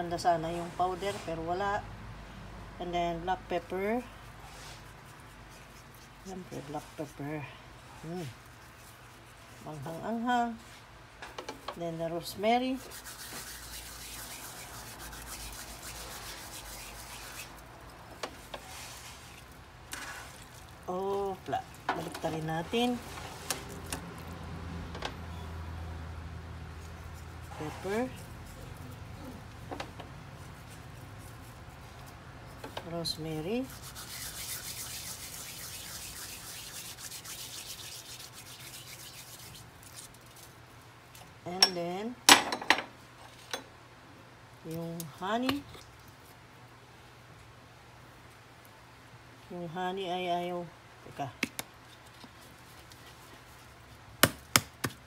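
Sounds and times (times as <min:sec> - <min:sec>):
dry herbs crackly rustling: 0:12.6 - 0:24.4, 0:26.7 - 0:41.3.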